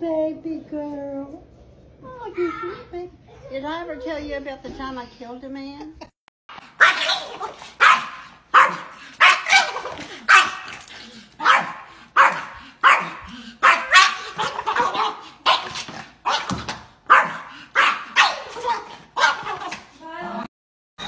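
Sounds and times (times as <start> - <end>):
small dog barking: 6.8 - 10.8, 11.4 - 19.8.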